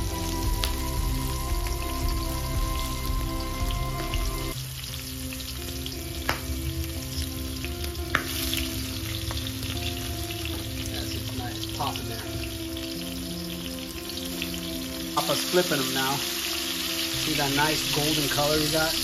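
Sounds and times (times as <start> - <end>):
shrimp sizzling in oil: 0.0 - 19.0.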